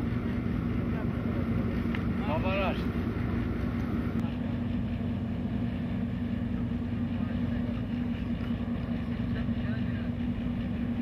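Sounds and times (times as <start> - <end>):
engine running steadily: 0.0 - 11.0.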